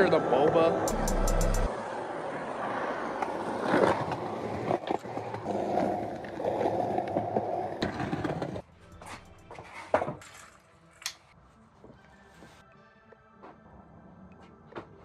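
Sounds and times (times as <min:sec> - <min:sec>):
skateboard wheels rolling on asphalt: 0:01.7 - 0:08.6.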